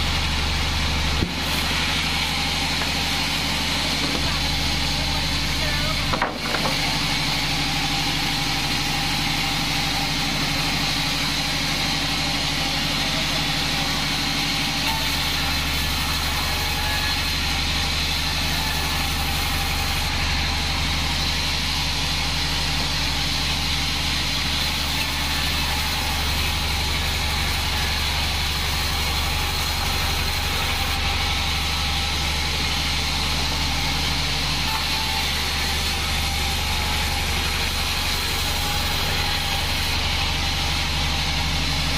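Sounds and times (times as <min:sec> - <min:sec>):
band saw cutting log: 0:00.0 - 0:41.9.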